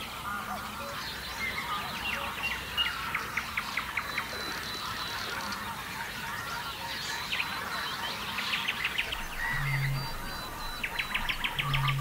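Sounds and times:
wetland birds calling: 0:00.2 - 0:12.0
honking bird calls: 0:09.2 - 0:12.0.

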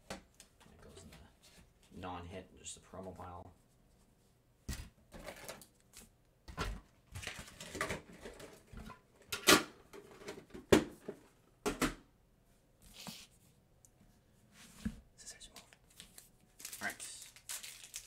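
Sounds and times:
plastic rustling: 0:15.9 - 0:18.0.

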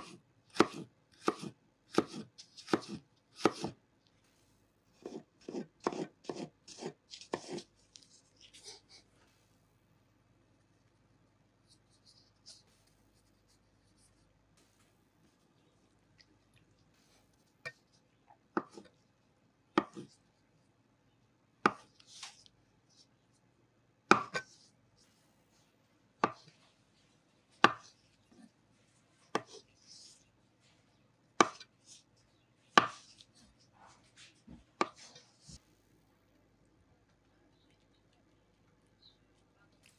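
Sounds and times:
knife chopping on wooden board: 0:00.0 - 0:03.8, 0:05.0 - 0:07.6, 0:21.6 - 0:21.8, 0:24.1 - 0:24.5, 0:27.6 - 0:27.8, 0:31.4 - 0:31.6, 0:32.8 - 0:33.0.

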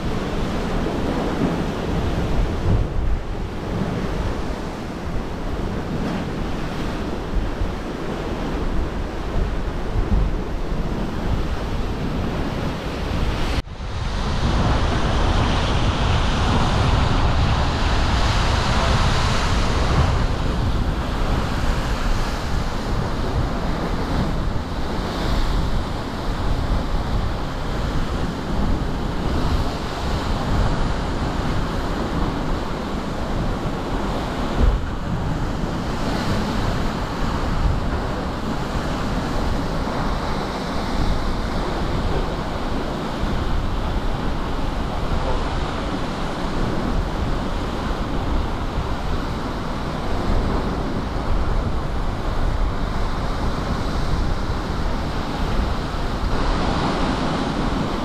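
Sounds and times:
heavy surf crashing: 0:00.0 - 0:58.0
wind buffeting microphone: 0:00.0 - 0:58.0.

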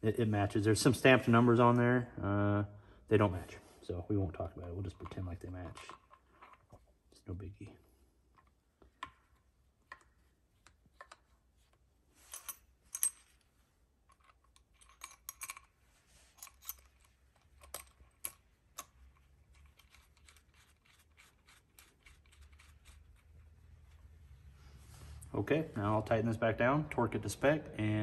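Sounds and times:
metal parts clicking and scraping: 0:14.1 - 0:24.1.

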